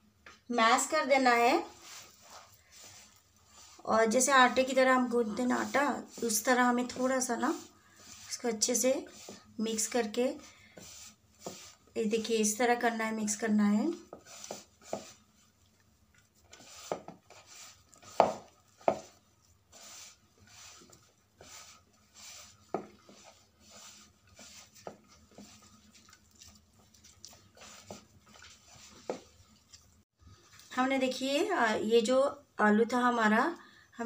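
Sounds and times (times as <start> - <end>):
hand kneading soft squishes: 14.0 - 30.0.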